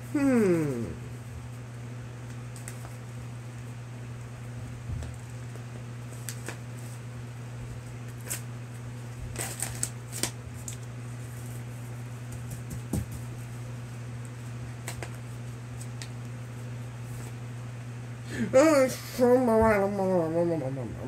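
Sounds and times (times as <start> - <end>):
steady low hum: 0.0 - 21.0
paper and tape crinkling: 2.3 - 3.0, 5.0 - 7.0, 8.0 - 8.5, 9.1 - 11.6, 14.8 - 16.1.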